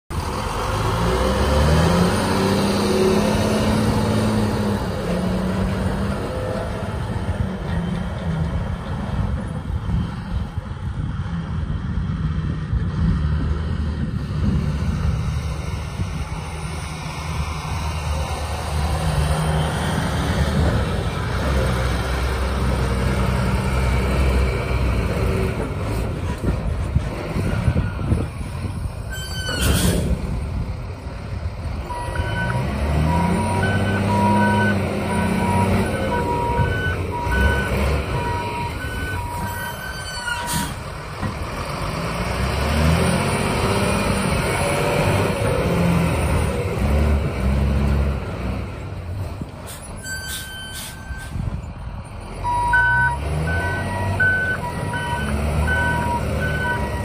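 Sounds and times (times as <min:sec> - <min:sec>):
diesel truck engine running: 0:30.0 - 0:50.0, 0:51.3 - 0:57.0.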